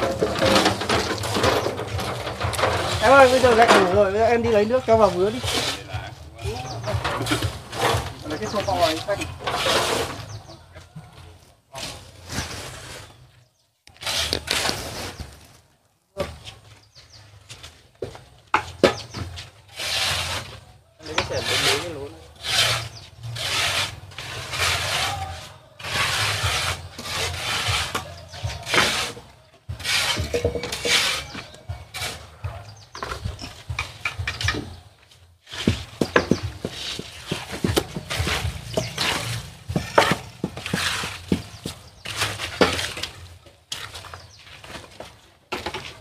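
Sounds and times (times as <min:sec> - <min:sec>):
shovel scraping wet mortar: 0:00.0 - 0:05.9, 0:06.6 - 0:10.5, 0:13.9 - 0:15.4, 0:19.7 - 0:29.2, 0:29.8 - 0:32.4, 0:35.5 - 0:45.0.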